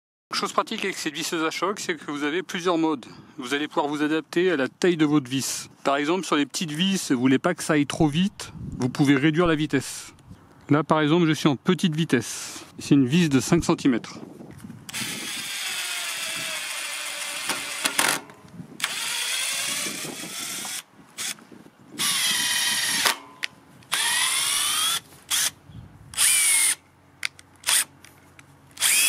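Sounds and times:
impact driver motor whine: 14.9 - 21.4, 22.0 - 25.6, 26.2 - 26.8, 28.8 - 29.0.

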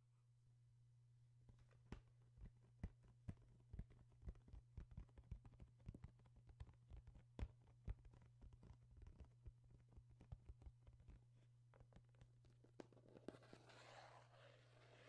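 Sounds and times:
low steady hum: 0.0 - 4.7.

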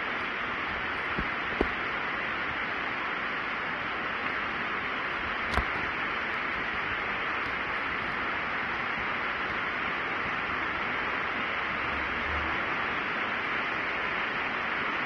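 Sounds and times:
steady hiss: 0.0 - 15.0
sharp click: 5.3 - 6.6.

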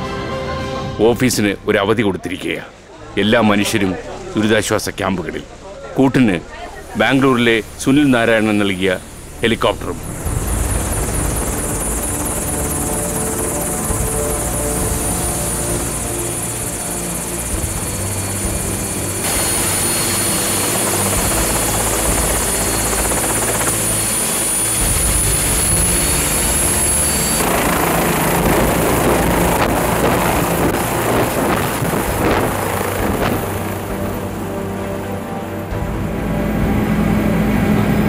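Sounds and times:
helicopter turbine whine: 3.2 - 38.0
helicopter rotor noise: 6.4 - 38.0.

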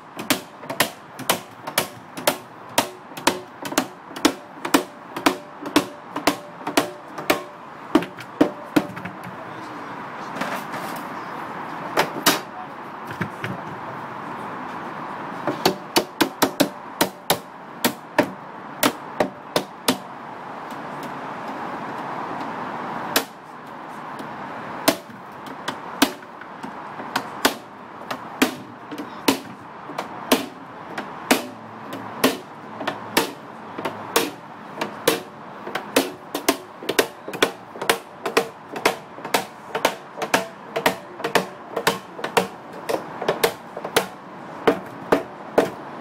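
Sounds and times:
hammer striking metal: 36.0 - 45.7.

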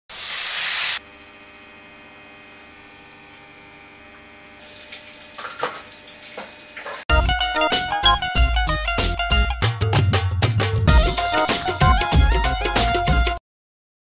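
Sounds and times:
vegetables sizzling in hot oil: 0.1 - 1.0
electrical hum: 1.0 - 7.0.

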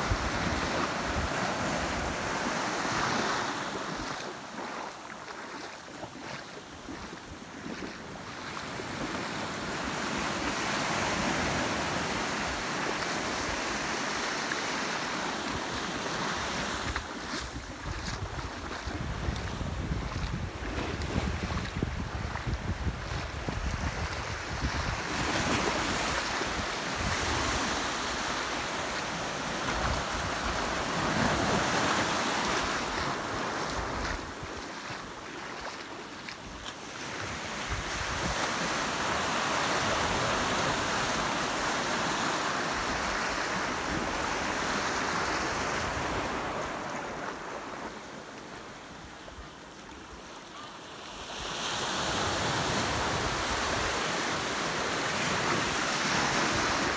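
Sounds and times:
small waves breaking: 0.0 - 56.9
wind rumbling on microphone: 16.7 - 28.4.

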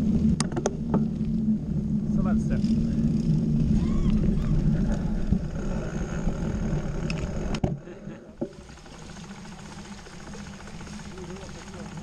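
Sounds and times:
wind buffeting microphone: 0.0 - 7.7
bike tyre rumble: 0.0 - 12.0
bike hub freewheel ticking: 8.5 - 12.0.

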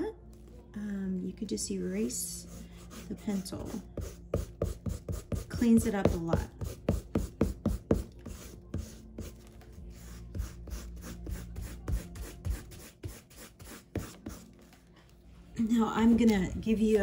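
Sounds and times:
eraser rubbing on paper: 2.3 - 14.5.

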